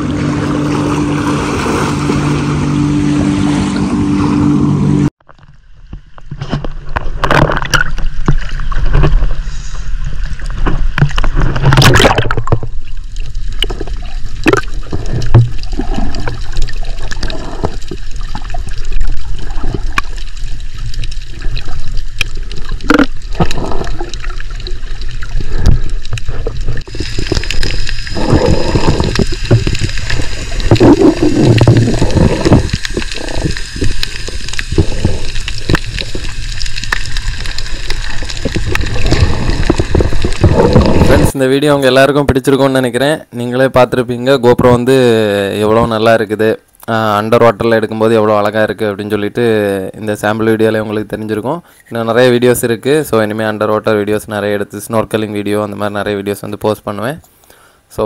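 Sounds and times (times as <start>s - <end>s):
muffled underwater rushing: 0.0s - 41.4s
underwater clicks and knocks: 5.2s - 9.4s, 10.4s - 12.9s, 13.5s - 20.2s, 21.0s - 41.3s.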